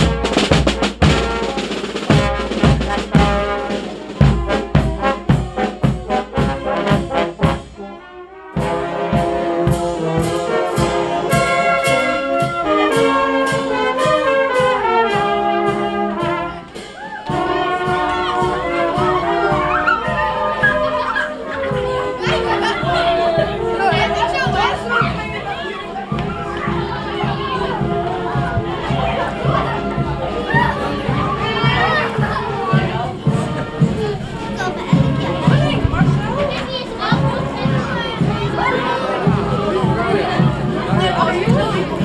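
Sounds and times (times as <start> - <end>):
bass drum and snare beat: 0.0 - 7.8, 8.6 - 16.4, 34.9 - 42.0
brass band playing chords: 0.0 - 42.0.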